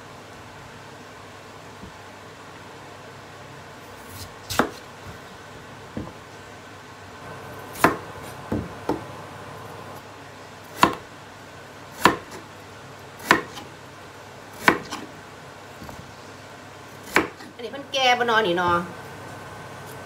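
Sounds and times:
knife chopping on wooden board: 0:04.1 - 0:05.2, 0:07.7 - 0:09.1, 0:10.8 - 0:11.0, 0:12.0 - 0:12.4, 0:13.2 - 0:13.7, 0:14.6 - 0:15.1, 0:17.0 - 0:17.5.

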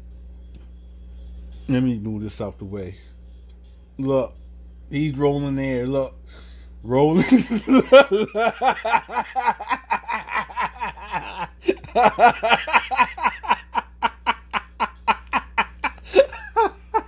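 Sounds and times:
man laughing hard: 0:07.2 - 0:17.0.

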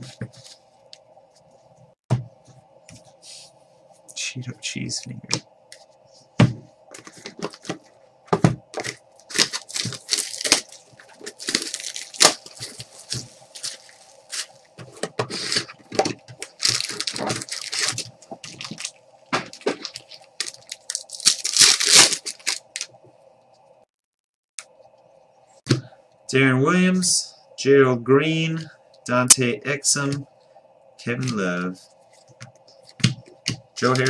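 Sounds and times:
plastic shrink-wrap tearing: 0:08.8 - 0:14.6, 0:16.4 - 0:18.9, 0:19.5 - 0:22.9.

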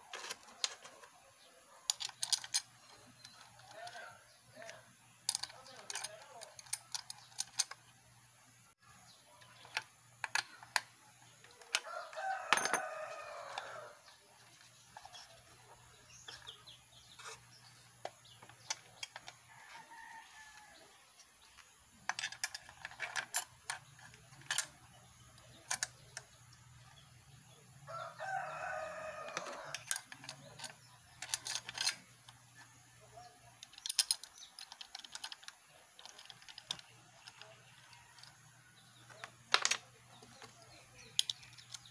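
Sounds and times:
small metal clicks and taps: 0:01.9 - 0:07.8, 0:09.4 - 0:12.9, 0:18.0 - 0:19.4, 0:33.6 - 0:38.4, 0:39.0 - 0:41.9
rooster crowing: 0:11.7 - 0:14.1, 0:19.5 - 0:20.9, 0:27.9 - 0:30.0.

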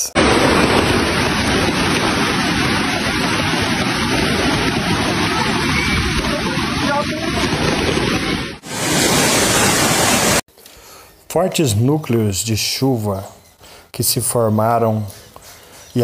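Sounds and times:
heavy rain falling: 0:00.0 - 0:10.5
river rushing: 0:00.2 - 0:10.4.

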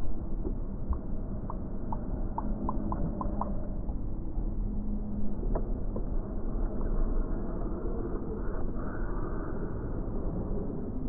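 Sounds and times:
faint ticks: 0:00.4 - 0:04.0.

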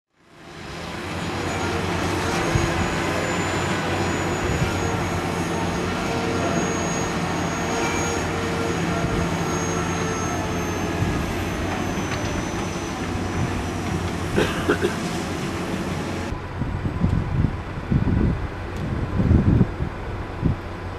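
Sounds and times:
drilling rig engine running: 0:00.4 - 0:20.9
faint high whine: 0:01.0 - 0:13.8.

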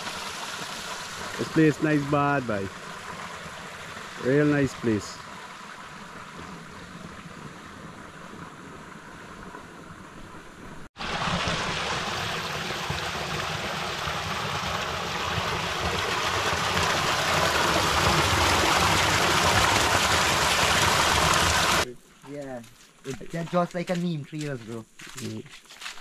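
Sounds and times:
water pouring and splashing: 0:00.0 - 0:07.2, 0:11.0 - 0:21.9
outdoor background noise: 0:00.0 - 0:26.0.

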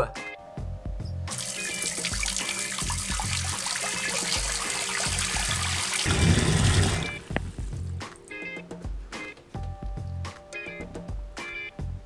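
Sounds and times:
background music with steady beat: 0:00.0 - 0:12.0
tap water pouring into sink: 0:01.3 - 0:07.6.

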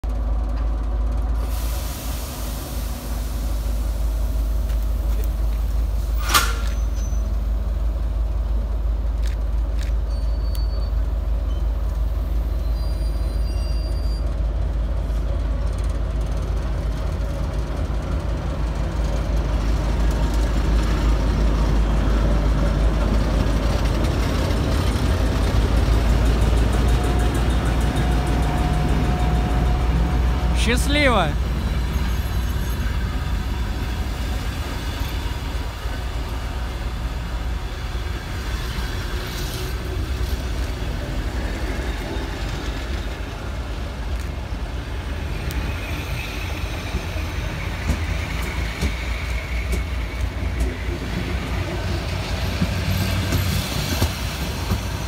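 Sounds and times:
hiss of air: 0:01.4 - 0:05.0
sharp click: 0:06.2 - 0:06.8
locomotive diesel engine droning: 0:19.1 - 0:53.3.

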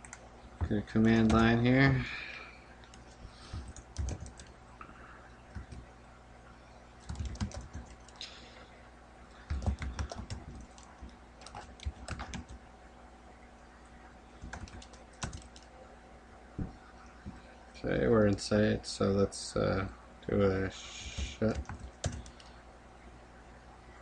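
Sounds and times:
computer keyboard typing: 0:01.0 - 0:01.6, 0:02.9 - 0:04.5, 0:05.5 - 0:05.9, 0:07.0 - 0:08.2, 0:09.4 - 0:12.6, 0:14.4 - 0:15.7, 0:21.1 - 0:22.6.

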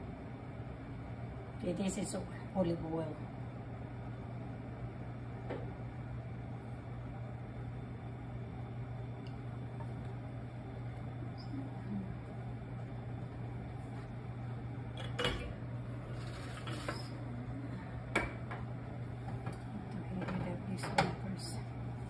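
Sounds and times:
low mechanical hum: 0:00.0 - 0:22.0.

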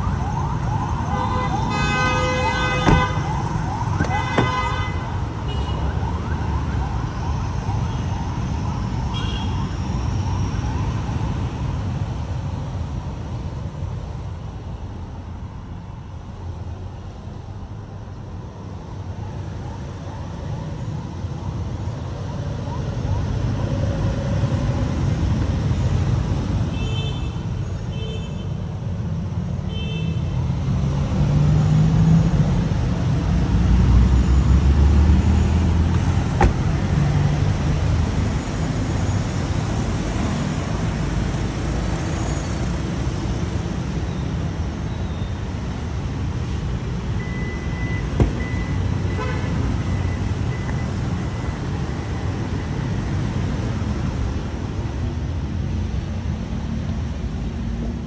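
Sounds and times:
traffic rumble: 0:00.0 - 0:58.0.

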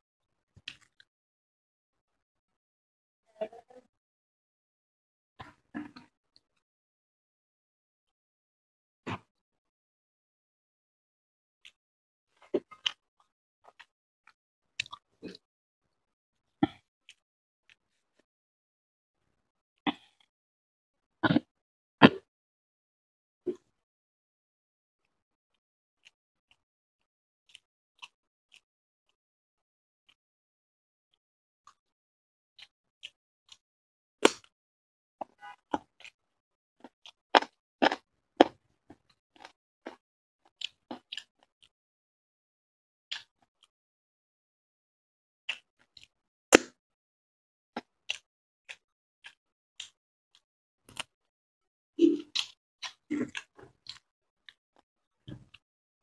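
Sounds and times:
man chewing with wet smacks: 0:12.5 - 0:13.9, 0:14.8 - 0:15.4, 0:35.2 - 0:36.2, 0:36.8 - 0:41.7, 0:45.5 - 0:46.1, 0:47.8 - 0:51.1, 0:52.0 - 0:54.6.

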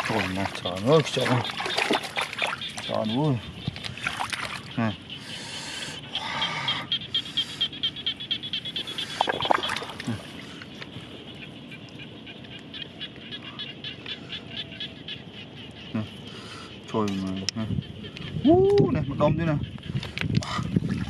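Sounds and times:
hands splashing in wet mud: 0:00.0 - 0:02.8, 0:09.2 - 0:10.2
frogs calling: 0:00.0 - 0:21.0.

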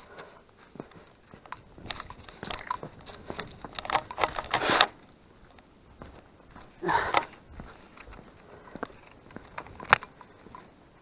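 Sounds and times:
footsteps crunching on trail: 0:00.0 - 0:11.0.

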